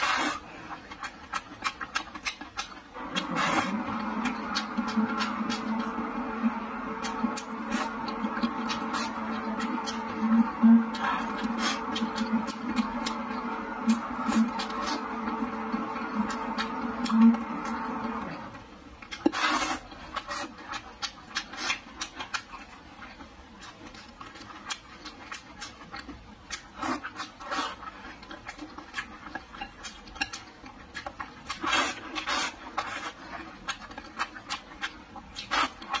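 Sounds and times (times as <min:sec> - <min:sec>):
chewing and smacking: 0:00.0 - 0:36.0.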